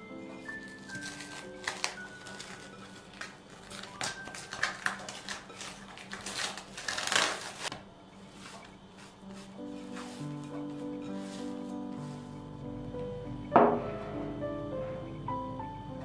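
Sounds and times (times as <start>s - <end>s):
cling film crinkling: 0.3s - 12.4s
film peeled off rustling: 0.3s - 12.4s.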